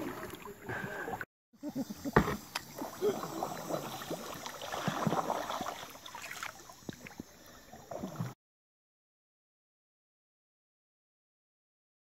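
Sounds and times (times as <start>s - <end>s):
water splashing and sloshing: 0.0s - 1.3s, 1.9s - 8.4s.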